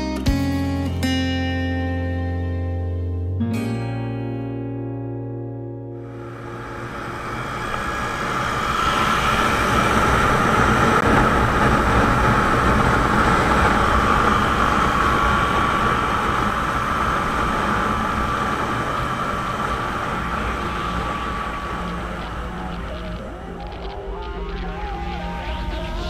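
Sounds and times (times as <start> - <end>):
motorcycle engines droning: 6.0 - 26.0
wind noise: 6.0 - 26.0.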